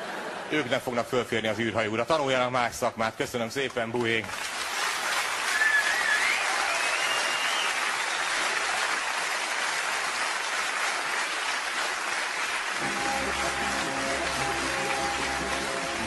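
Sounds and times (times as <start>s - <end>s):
audience applauding: 3.6s - 16.0s
wavering whistle: 5.5s - 7.8s
music: 12.8s - 16.0s.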